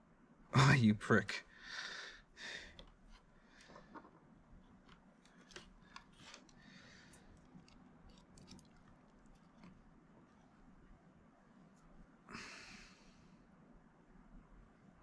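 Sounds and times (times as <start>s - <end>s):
faint clicks and rustling: 2.7s - 10.9s.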